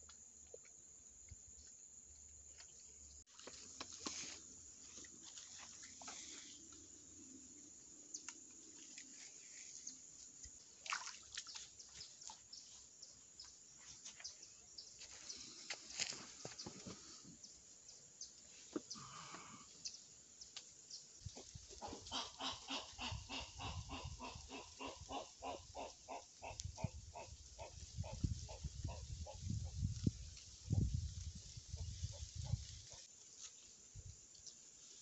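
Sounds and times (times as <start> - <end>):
rapid repeated animal calls: 21.4 - 29.7.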